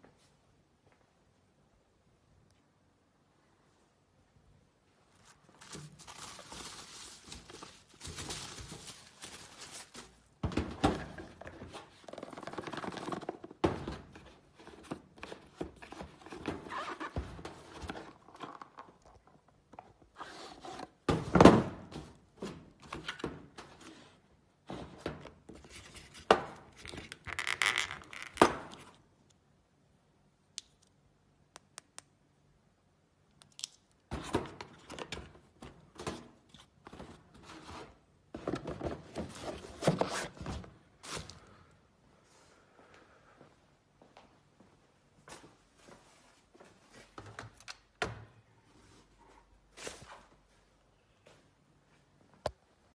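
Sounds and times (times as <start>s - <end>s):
bubble wrap rustling: 5.1s - 10.4s.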